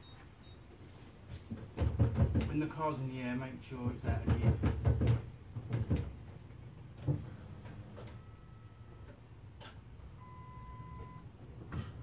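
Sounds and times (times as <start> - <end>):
faint electronic beeps: 0.0 - 0.7, 8.1 - 9.1, 10.1 - 11.5.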